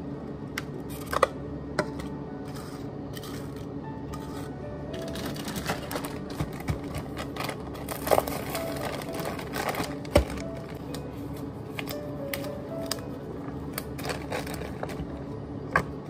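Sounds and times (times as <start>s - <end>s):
plastic cups and tongs clatter: 3.2s - 10.8s, 13.9s - 15.1s
plastic bag rustling: 4.2s - 11.0s, 13.8s - 15.2s.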